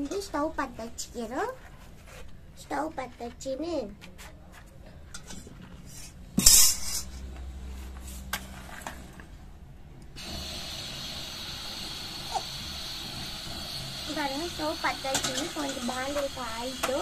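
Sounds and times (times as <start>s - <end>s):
gas burner hissing: 10.2s - 17.0s.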